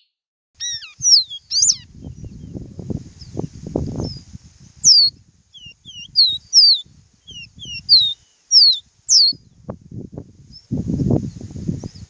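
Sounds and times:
bird singing down-slurred whistles: 0.0s - 2.6s, 4.8s - 9.6s.

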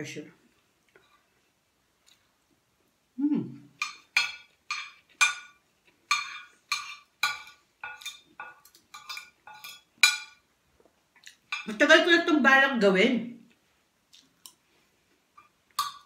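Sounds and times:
cutlery clinking on a plate: 3.8s - 10.4s, 15.4s - 16.0s.

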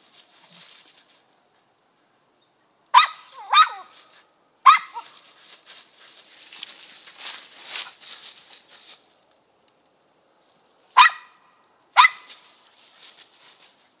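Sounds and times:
rustling in dry leaves: 0.0s - 1.4s, 3.2s - 9.4s, 12.0s - 14.0s
dog barking: 2.9s - 3.9s, 4.6s - 5.0s, 11.0s - 11.4s, 12.0s - 12.3s.

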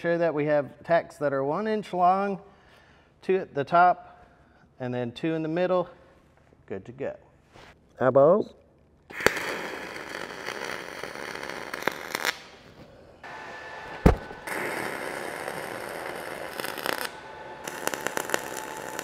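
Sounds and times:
welding arc crackling: 9.1s - 19.0s
sharp knock: 14.0s - 14.4s.

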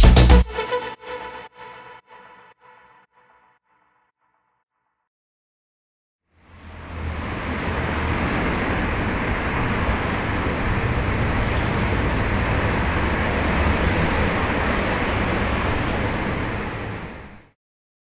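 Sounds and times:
traffic noise: 6.3s - 17.6s.

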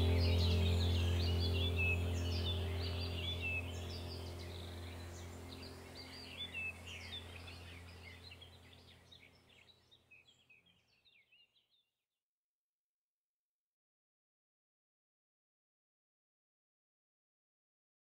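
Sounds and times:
low steady hum: 0.0s - 9.7s
birds chirping: 0.0s - 11.6s.

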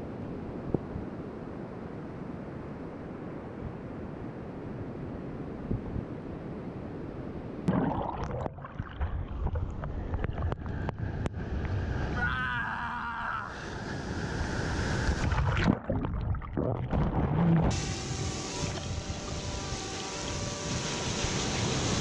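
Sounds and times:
water sloshing and splashing: 7.7s - 11.3s, 15.2s - 17.4s
muffled underwater sound: 15.3s - 17.7s.

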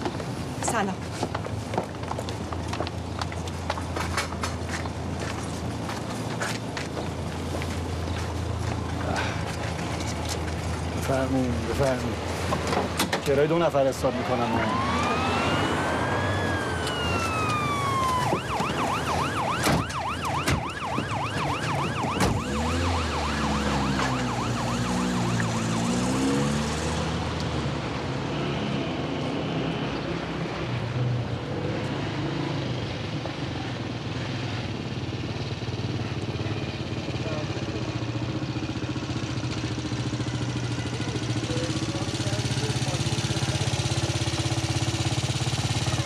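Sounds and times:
emergency vehicle siren: 13.6s - 27.2s.

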